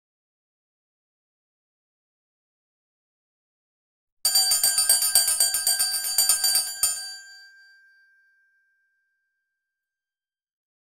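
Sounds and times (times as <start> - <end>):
small bell ringing rapidly: 4.3 - 8.0.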